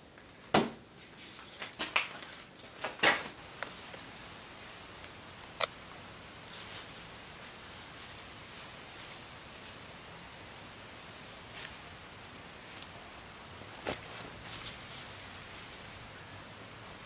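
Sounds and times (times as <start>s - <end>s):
potatoes knocking and rustling: 13.6s - 16.0s.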